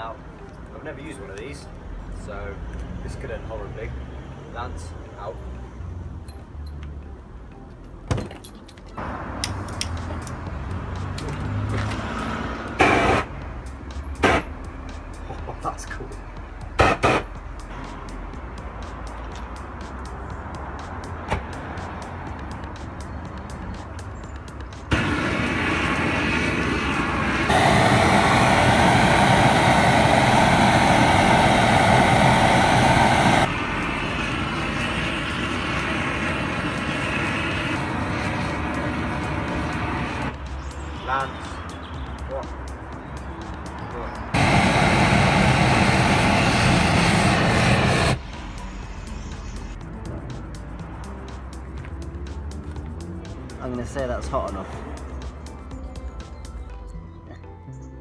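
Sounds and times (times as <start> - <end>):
burst of flame noise: 11.9 - 13.3, 14.2 - 14.5, 16.8 - 17.3, 24.9 - 40.3, 44.4 - 49.7
gas torch hissing: 12.2 - 13.3, 14.2 - 14.5, 16.8 - 17.3, 24.9 - 40.3, 44.4 - 49.8.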